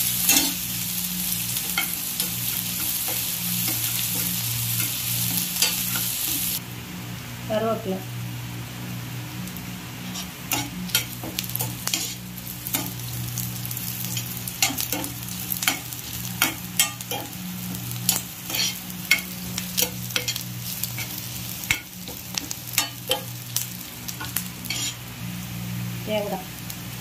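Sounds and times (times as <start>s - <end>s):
food sizzling in hot oil: 0.0s - 6.6s, 8.2s - 27.0s
spatula scraping a pan: 10.0s - 23.4s, 24.1s - 25.0s.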